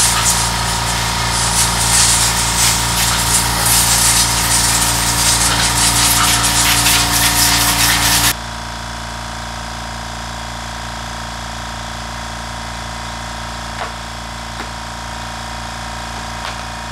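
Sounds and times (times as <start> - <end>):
compressed air blow gun hissing: 0.0 - 8.4.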